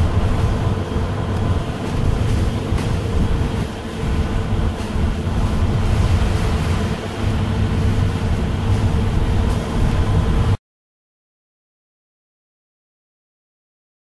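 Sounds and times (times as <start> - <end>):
bus engine rumble: 0.0 - 10.6
constant hum: 0.0 - 10.6
tyres hissing on wet road: 0.0 - 10.6.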